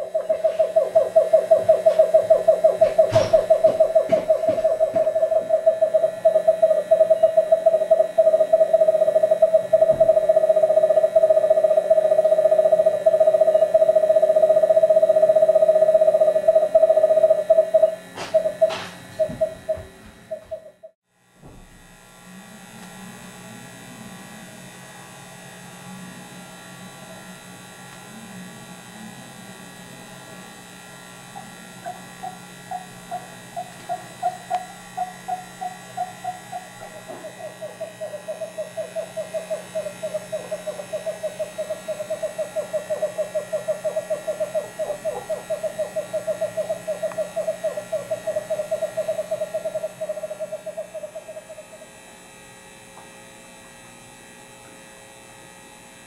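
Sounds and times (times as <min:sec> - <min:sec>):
screech owl hooting and trilling: 0:00.0 - 0:21.0, 0:31.4 - 0:52.1
steady electrical hum: 0:00.0 - 0:56.0.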